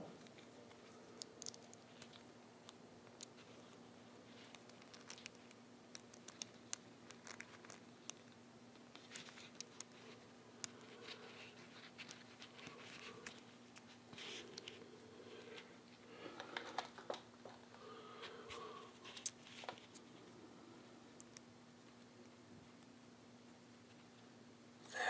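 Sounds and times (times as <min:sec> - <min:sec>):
faint steady hum: 0:00.0 - 0:25.0
small metal parts clicking: 0:01.4 - 0:02.2, 0:04.4 - 0:08.4.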